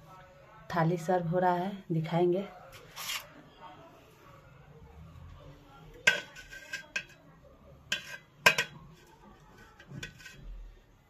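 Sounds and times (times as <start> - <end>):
spoon clinking against plate: 7.9 - 8.8.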